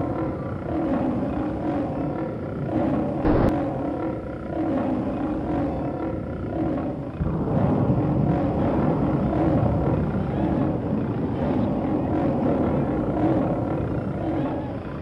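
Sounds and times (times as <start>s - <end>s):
deep rumble: 3.0s - 4.2s
sharp hit: 3.2s - 3.6s.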